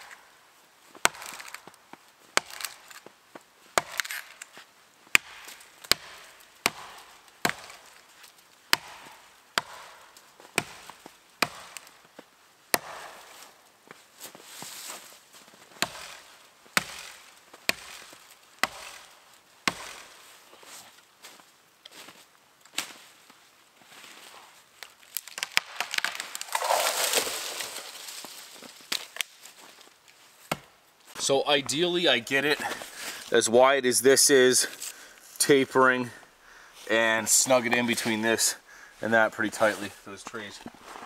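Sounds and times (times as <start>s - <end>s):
axe chopping wood: 1.0s - 1.7s, 2.4s - 3.0s, 3.8s - 4.4s, 5.1s - 7.9s, 8.7s - 12.0s, 12.7s - 13.5s, 15.8s - 20.2s, 25.3s - 28.2s, 30.5s - 30.7s.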